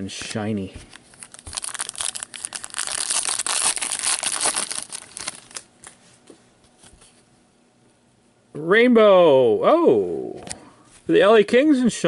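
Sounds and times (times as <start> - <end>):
wrapper tearing and crinkling: 1.0 - 5.7.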